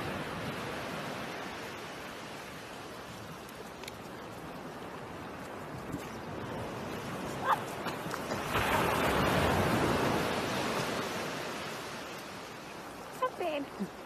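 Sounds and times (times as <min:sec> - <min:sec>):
surf washing on shore: 0:00.0 - 0:14.0
small dog yipping: 0:07.4 - 0:07.7.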